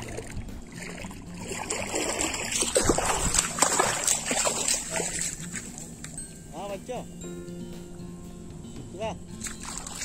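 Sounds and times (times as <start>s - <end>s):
water splashing and sloshing: 0.0s - 6.3s, 8.9s - 10.0s.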